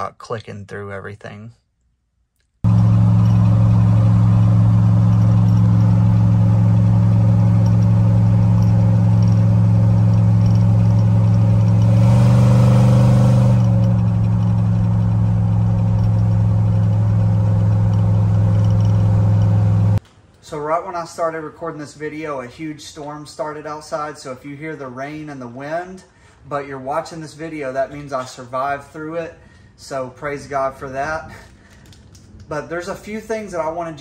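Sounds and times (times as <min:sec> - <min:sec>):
road noise inside a cab: 0:02.6 - 0:20.0
pickup truck engine drone: 0:02.7 - 0:20.0.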